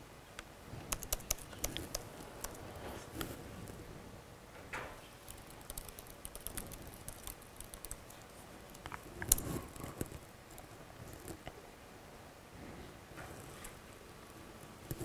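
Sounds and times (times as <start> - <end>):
laptop keyboard typing: 0.8 - 3.4, 5.1 - 11.6, 14.6 - 15.0.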